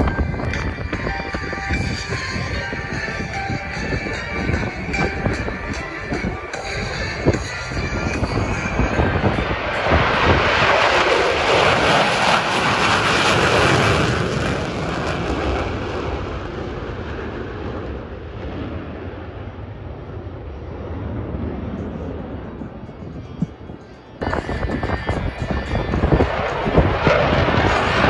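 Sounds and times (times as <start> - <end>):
jet engines flyby roar: 0.0 - 28.0.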